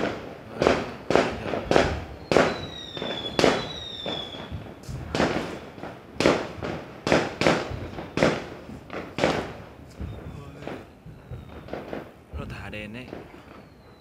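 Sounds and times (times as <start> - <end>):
fireworks bangs: 0.0 - 14.0
high whistle: 2.2 - 4.6.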